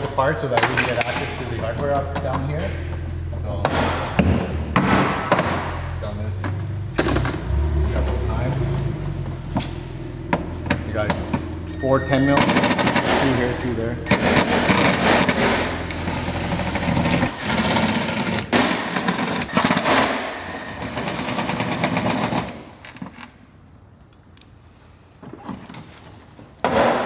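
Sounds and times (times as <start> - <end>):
impact driver rattling: 14.1 - 20.2.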